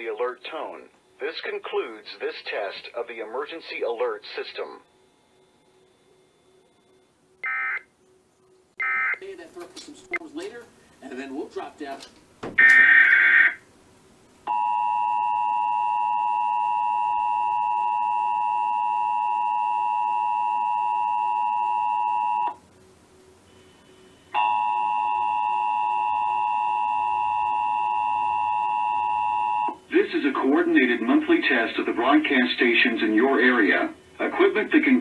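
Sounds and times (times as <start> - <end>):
two-tone alarm through tv speaker: 4.9 - 7.9, 8.8 - 9.2, 12.6 - 13.6, 14.5 - 22.6, 23.5 - 29.8.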